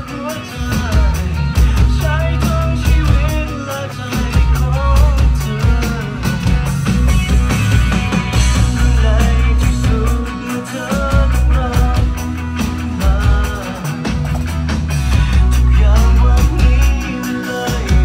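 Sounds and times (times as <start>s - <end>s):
electronic drum kit beat: 0.0s - 18.0s
rock song with singing: 0.0s - 18.0s.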